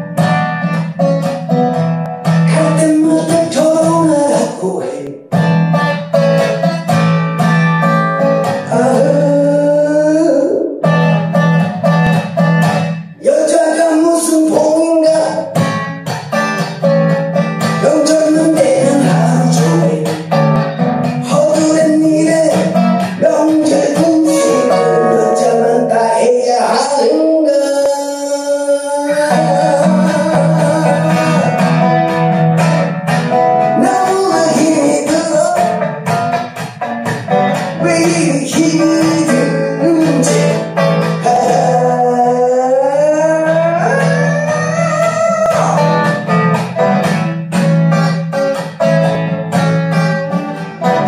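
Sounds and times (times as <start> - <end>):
acoustic guitar: 0.0 - 51.0
man singing: 2.4 - 5.4, 8.4 - 11.0, 13.1 - 15.9, 17.6 - 20.4, 21.1 - 32.1, 33.3 - 36.1, 37.5 - 46.4.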